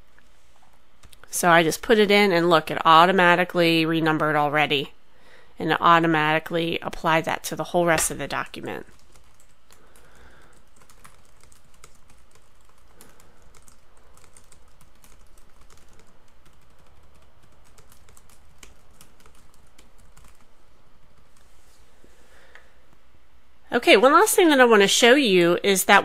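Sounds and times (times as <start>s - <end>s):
computer keyboard typing: 8.7s - 21.5s.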